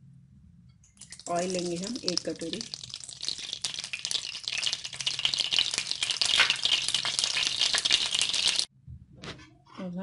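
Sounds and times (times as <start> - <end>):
hot oil crackling and sizzling: 1.0 - 8.7.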